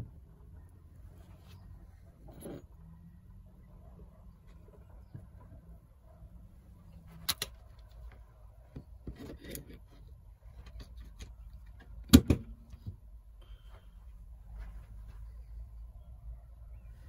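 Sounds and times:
handling clicks and knocks: 0:07.0 - 0:13.0.

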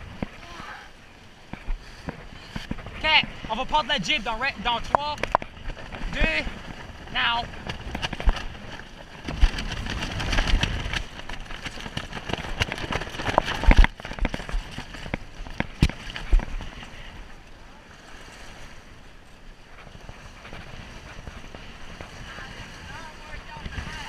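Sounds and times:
water splashing along a boat hull: 0:00.0 - 0:24.0
wind on the microphone: 0:00.0 - 0:24.0
sharp knocks of sail lines: 0:04.6 - 0:17.0.

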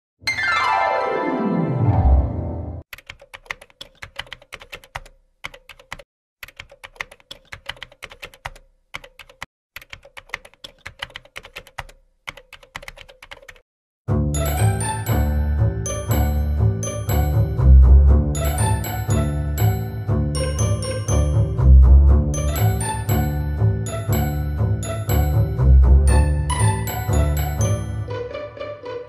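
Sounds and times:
music: 0:00.3 - 0:02.8, 0:14.1 - 0:29.0
rapid keyboard key clicks: 0:02.9 - 0:13.6.

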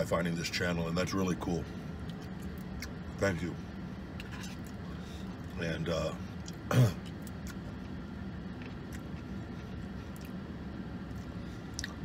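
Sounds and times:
low hum inside car: 0:00.0 - 0:12.0
man chewing food: 0:02.0 - 0:03.0, 0:04.1 - 0:05.5, 0:06.3 - 0:12.0.

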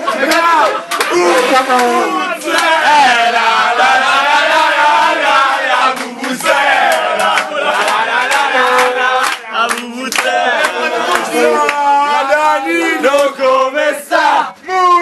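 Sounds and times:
young men chanting and singing: 0:00.0 - 0:15.0.

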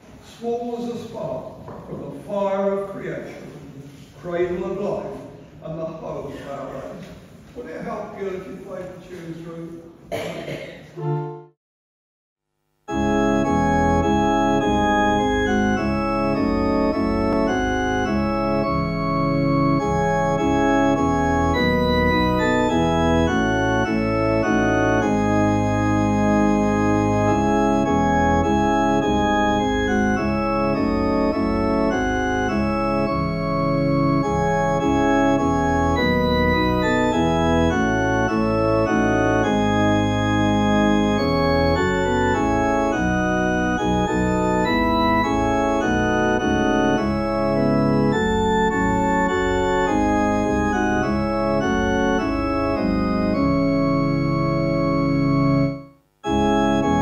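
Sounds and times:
pipe organ playing hymn chords: 0:11.0 - 0:11.5, 0:12.9 - 0:57.0.

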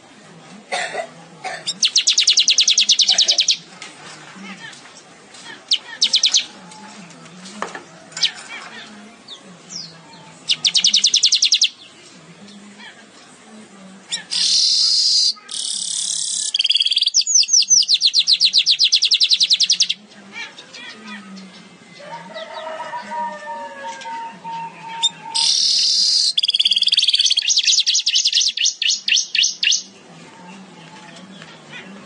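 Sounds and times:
bird chattering trills: 0:01.6 - 0:03.7, 0:05.7 - 0:06.6, 0:10.5 - 0:11.8, 0:14.1 - 0:21.7, 0:24.9 - 0:29.9
bird harsh wheezy buzz: 0:14.3 - 0:16.7.

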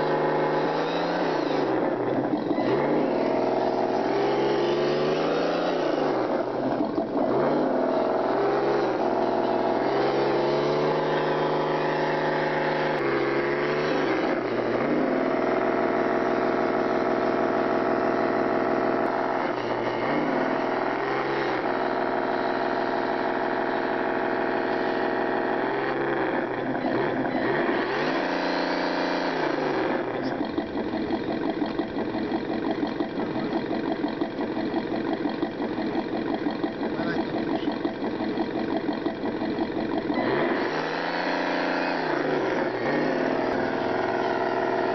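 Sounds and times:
toy truck motor whining: 0:25.2 - 0:44.9.

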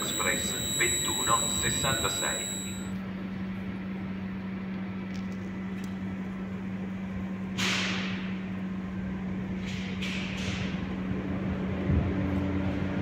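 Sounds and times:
low electrical hum: 0:00.0 - 0:07.4.

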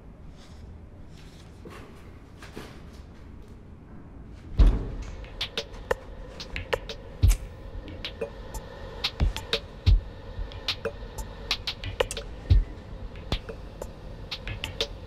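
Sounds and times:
heavy thump on metal door: 0:04.6 - 0:05.2.

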